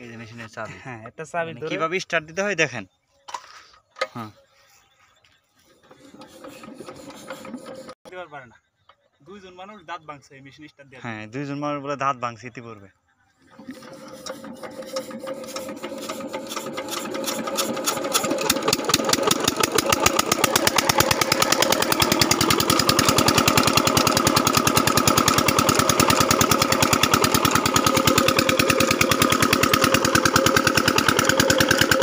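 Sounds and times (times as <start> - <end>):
diesel engine knocking: 15.8 - 32.0.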